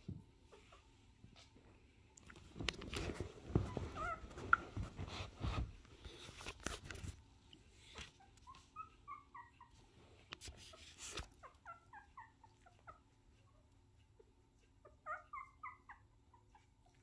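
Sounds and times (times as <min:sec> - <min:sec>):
puppy squeaking and whimpering: 0:03.5 - 0:04.8, 0:08.0 - 0:09.9, 0:10.6 - 0:17.0.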